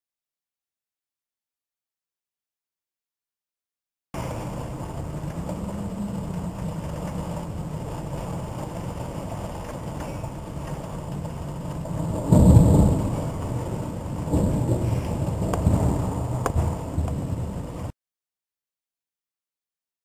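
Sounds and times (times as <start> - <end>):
wind and rain rumble: 4.2 - 17.9
thunder burst: 11.5 - 17.9.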